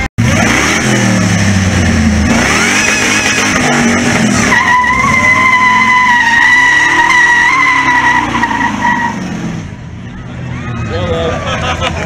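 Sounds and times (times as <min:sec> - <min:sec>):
engine revving: 0:00.0 - 0:09.8
tyres squealing: 0:02.6 - 0:09.2.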